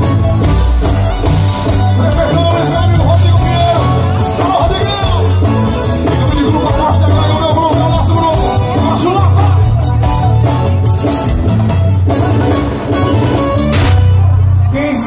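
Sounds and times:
accordion: 0.0s - 14.7s
heavy pulsing bass: 0.0s - 15.0s
man singing: 2.0s - 9.9s.

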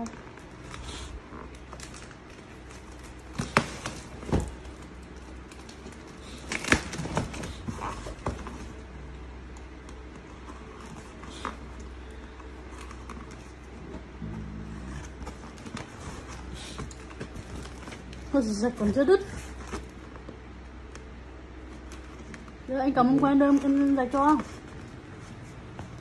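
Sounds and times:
cardboard knocks and crinkles: 1.7s - 8.9s, 15.0s - 20.4s.

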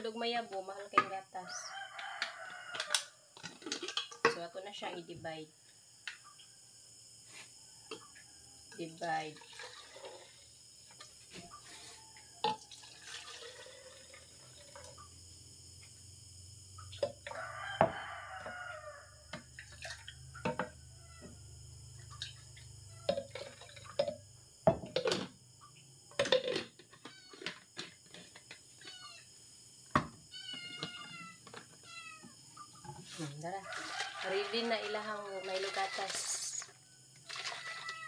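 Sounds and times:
milk pouring splash: 9.4s - 10.4s, 12.7s - 14.9s, 37.2s - 38.0s.

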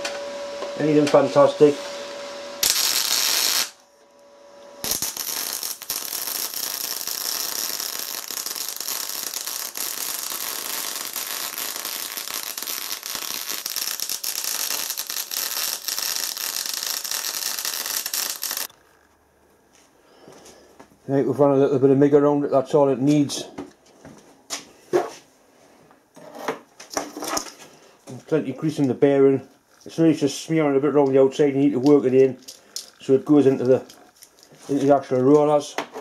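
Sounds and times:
welder arc crackling: 0.8s - 3.9s, 4.6s - 18.8s.

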